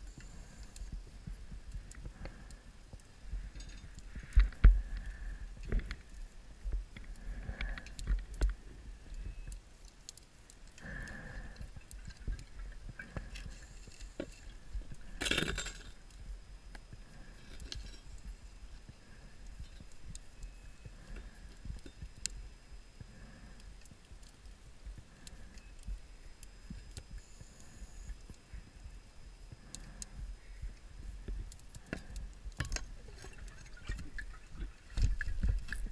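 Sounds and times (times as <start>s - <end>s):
small clicks and knocks: 31.2s - 35.9s.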